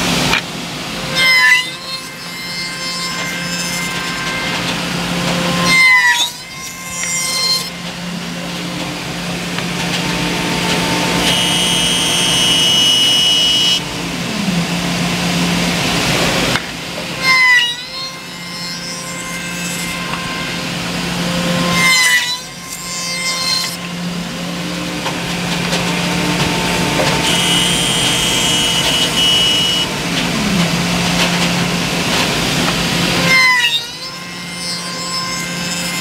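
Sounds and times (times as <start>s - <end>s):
circular saw blades cutting wood: 0.0s - 36.0s.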